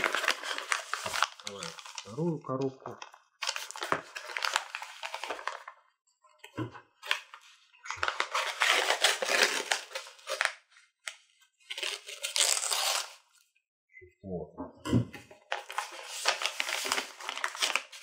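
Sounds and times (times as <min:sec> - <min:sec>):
paper wrapping rustling: 0:00.0 - 0:02.2, 0:03.0 - 0:05.8, 0:07.0 - 0:13.2, 0:15.5 - 0:18.0.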